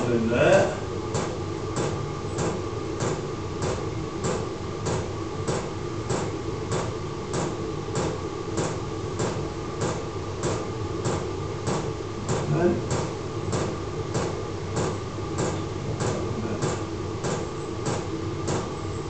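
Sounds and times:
blower fan humming: 0.0s - 19.0s.

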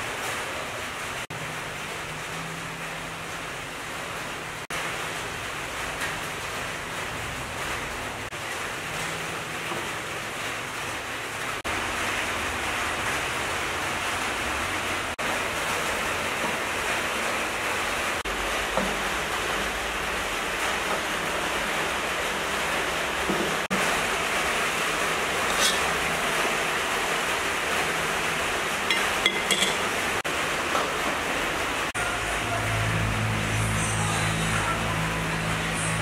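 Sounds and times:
water boiling in a pot: 0.0s - 36.0s
metal clinks of pot and lid: 25.5s - 25.9s, 28.9s - 29.9s.

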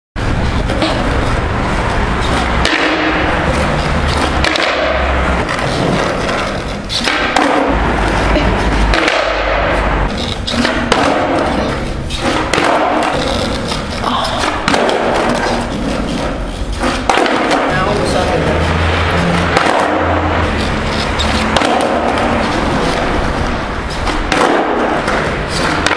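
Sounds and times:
skateboard wheels rolling on asphalt: 0.2s - 25.9s
skateboard clacks: 0.3s - 25.9s.

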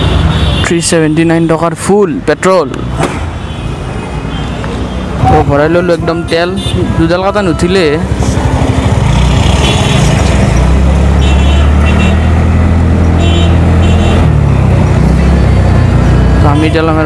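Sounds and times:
motor scooter engine: 6.6s - 16.5s.

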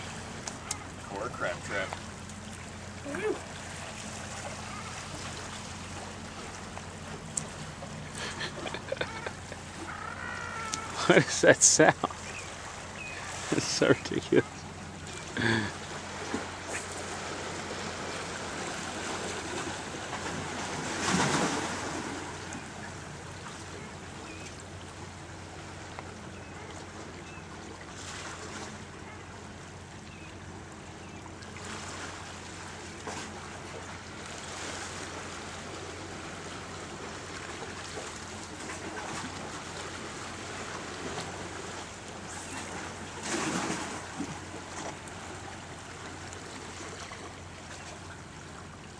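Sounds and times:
surf washing against rocks: 0.0s - 2.4s, 3.0s - 22.8s, 34.2s - 47.6s.

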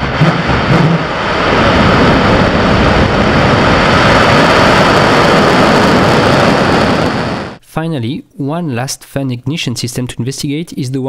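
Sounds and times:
rocket exhaust roaring: 0.0s - 7.6s.

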